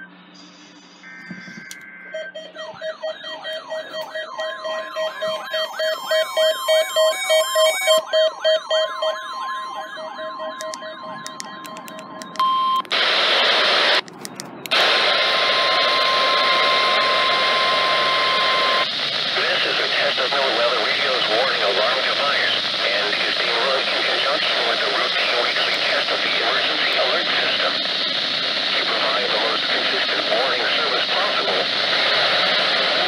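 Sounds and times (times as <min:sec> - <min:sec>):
pulsing steady beep: 0:00.0 - 0:12.8, 0:15.4 - 0:27.6
steady high tone: 0:00.0 - 0:13.0, 0:14.6 - 0:27.7
warbling electronic alert: 0:01.0 - 0:12.8
radio hiss: 0:12.9 - 0:14.0, 0:14.7 - 0:33.0.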